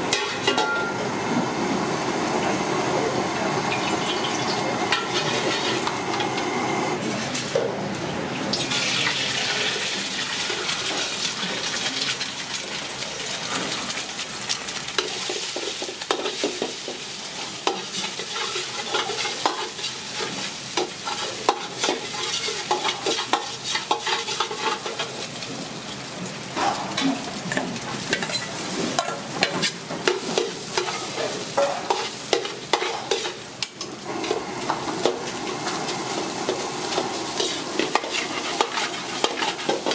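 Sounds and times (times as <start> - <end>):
food sizzling in oil: 0.0 - 7.0, 8.5 - 39.9
metal ladle scraping a wok: 36.9 - 39.9.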